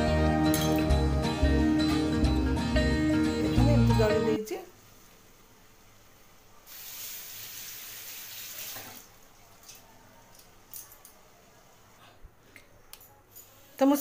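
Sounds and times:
water running from a tap: 6.7 - 9.1.

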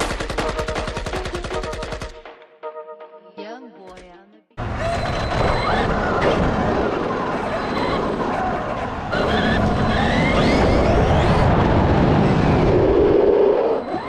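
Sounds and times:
tyres rumbling on pavement: 4.6 - 14.0.

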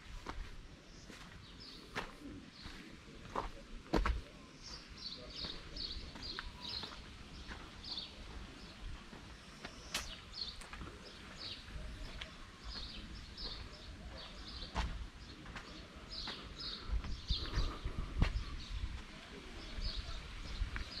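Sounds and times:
small birds chirping: 0.2 - 21.0.

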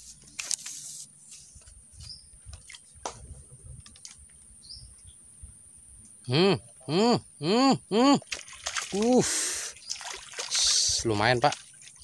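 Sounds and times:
hook and float splashing into water: 8.2 - 12.0.

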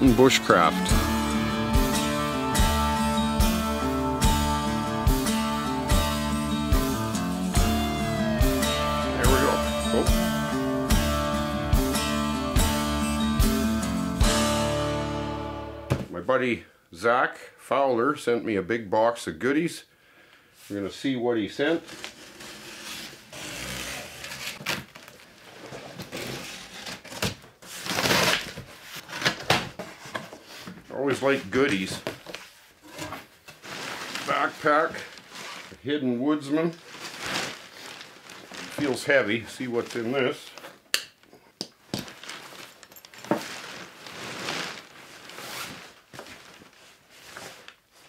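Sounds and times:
cardboard scraping and rustling: 21.8 - 35.8, 36.8 - 39.1, 42.1 - 48.0
fabric rustling and swishing: 32.4 - 35.8, 36.7 - 40.1, 42.0 - 48.0.

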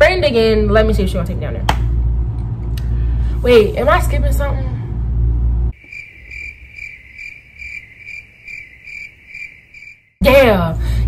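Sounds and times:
cricket chirping: 5.7 - 10.2.

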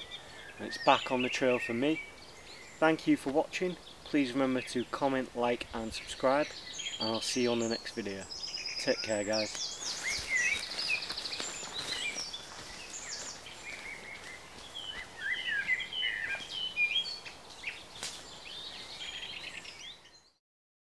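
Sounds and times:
faint outdoor hiss: 0.0 - 20.4
songbirds chirping: 0.0 - 20.4.

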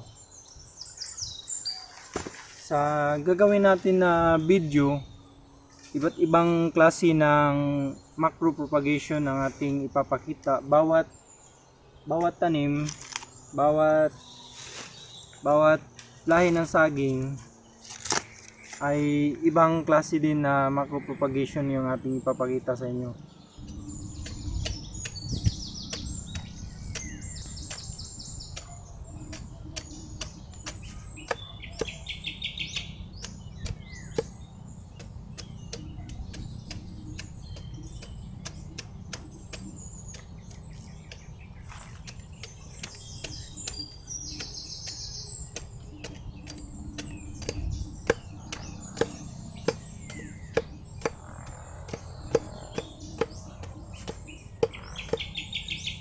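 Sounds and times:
birds chirping: 0.0 - 56.0
machete chopping: 2.1 - 2.6, 17.8 - 18.8, 23.7 - 55.3.

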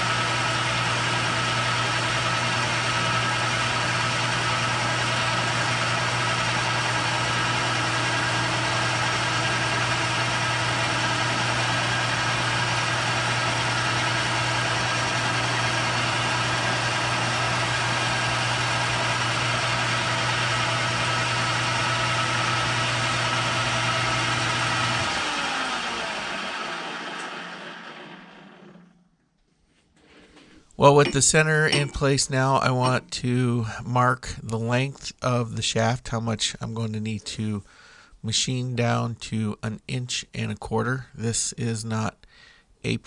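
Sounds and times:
drill boring into steel: 0.0 - 27.9
metal lathe humming and whining: 0.0 - 28.2.

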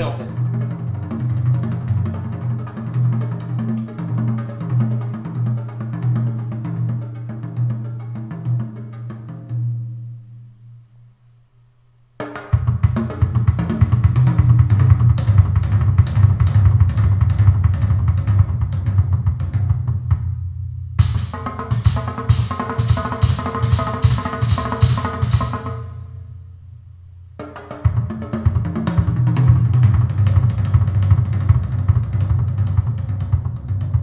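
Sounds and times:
drum kit through speakers: 0.0 - 9.5, 12.2 - 26.2, 27.4 - 34.0
ringing pitched drum strikes: 21.0 - 26.1.

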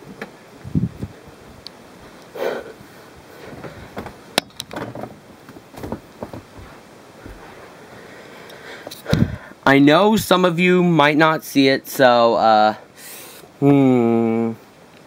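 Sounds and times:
handling knocks and rustles: 3.4 - 7.8.

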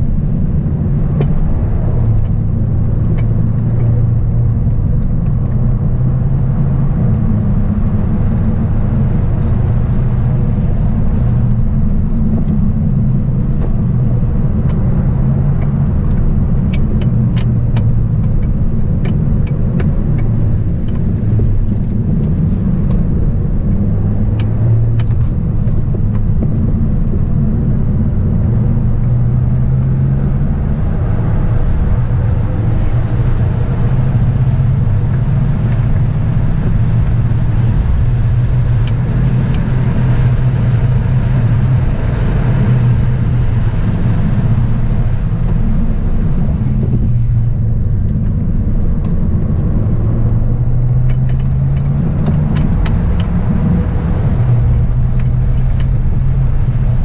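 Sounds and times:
car engine and tyre drone: 0.0 - 57.0
sharp clicks: 48.0 - 56.2.

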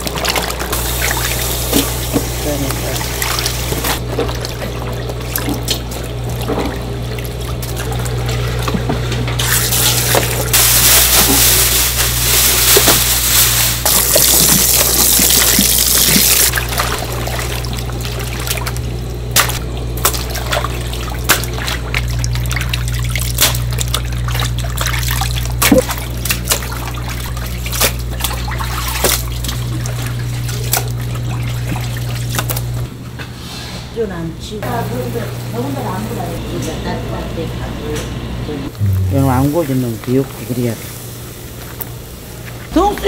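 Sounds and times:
water dripping and splashing: 0.0 - 32.9
water running into tub: 0.0 - 32.9
low hum: 38.7 - 39.8.

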